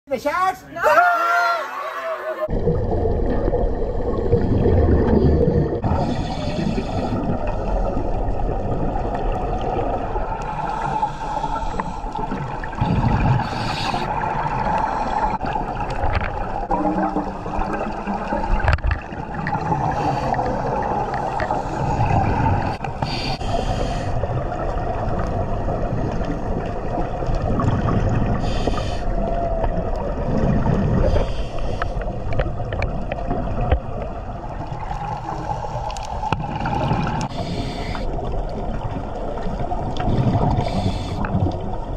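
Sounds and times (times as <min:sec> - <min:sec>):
underwater wash: 0:01.8 - 0:41.9
gurgling exhaled bubbles: 0:02.4 - 0:41.9
hissing regulator breath: 0:05.8 - 0:08.0, 0:10.5 - 0:12.2, 0:13.4 - 0:14.1, 0:22.8 - 0:24.2, 0:28.4 - 0:29.2, 0:31.0 - 0:32.1, 0:37.3 - 0:38.1, 0:40.5 - 0:41.3.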